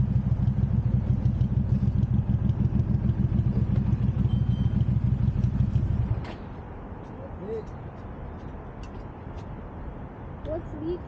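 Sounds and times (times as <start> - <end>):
motorcycle engine idling: 0.0 - 6.2.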